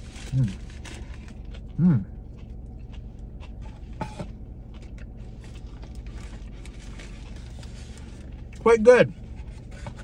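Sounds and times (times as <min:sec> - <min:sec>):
steady low hum: 0:00.0 - 0:10.0
man chewing: 0:00.1 - 0:08.6.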